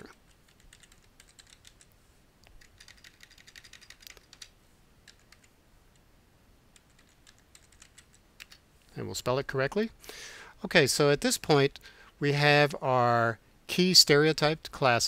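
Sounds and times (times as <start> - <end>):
faint keyboard typing: 0.0 - 6.1, 6.7 - 8.7.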